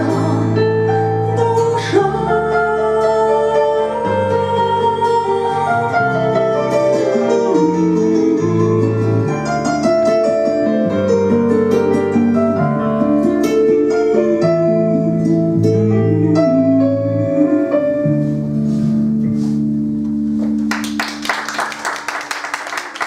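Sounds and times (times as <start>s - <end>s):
instrumental backing track: 0.0s - 22.3s
applause: 20.6s - 23.0s.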